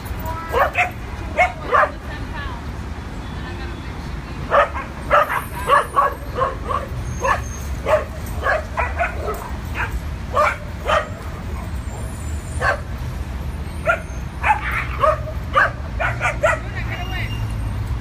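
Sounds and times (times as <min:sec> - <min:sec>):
dogs barking: 0:00.5 - 0:02.1, 0:04.5 - 0:11.8, 0:12.6 - 0:13.0, 0:13.8 - 0:16.8.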